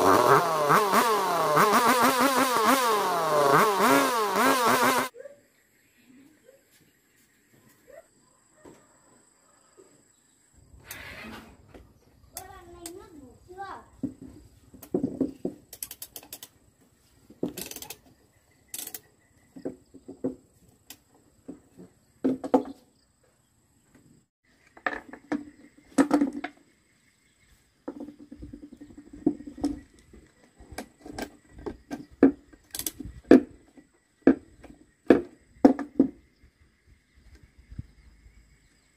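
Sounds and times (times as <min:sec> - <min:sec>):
ratchet wrench clicking: 0:15.7 - 0:16.5.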